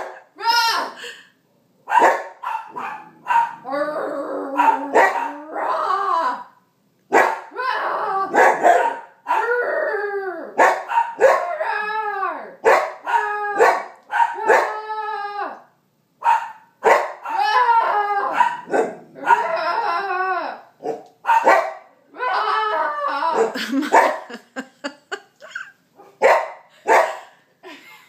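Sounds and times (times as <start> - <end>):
puppy howling: 3.3 - 6.5, 7.5 - 10.6, 11.2 - 15.6, 17.2 - 20.7, 22.1 - 23.6.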